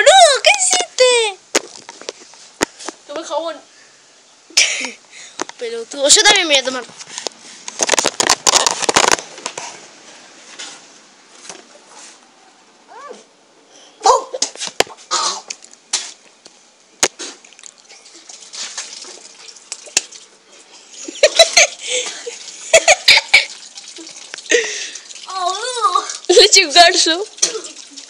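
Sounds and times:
boys coughing: 4.6s - 5.0s, 15.1s - 15.5s
boys laughing: 21.0s - 23.6s.

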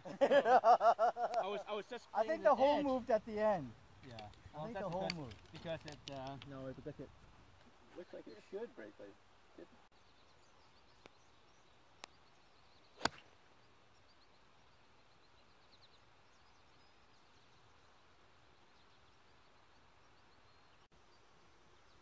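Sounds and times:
faint clicks: 4.0s - 6.6s
golf club striking ball: 13.0s - 13.3s.

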